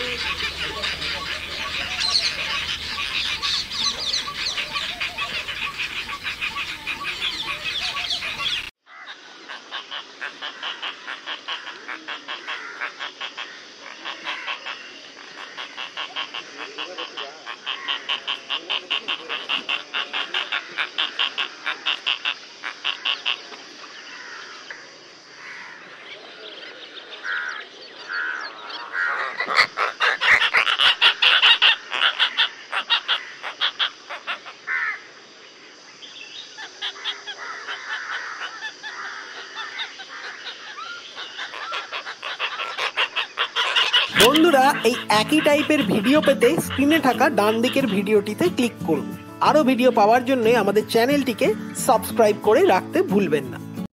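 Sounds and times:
storks rattling calls: 0.0 - 8.7, 41.2 - 51.4.

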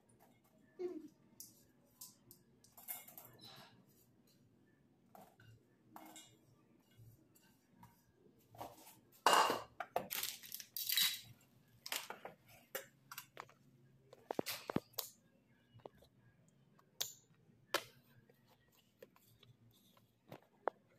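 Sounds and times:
kitchenware clinking against pot: 9.2 - 10.0.

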